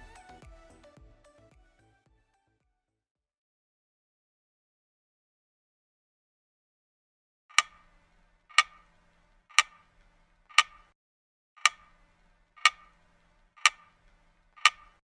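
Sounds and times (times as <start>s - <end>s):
sharp clock ticks: 7.5s - 7.9s, 8.5s - 8.9s, 9.5s - 10.9s, 11.6s - 12.0s, 12.6s - 13.0s, 13.6s - 15.0s.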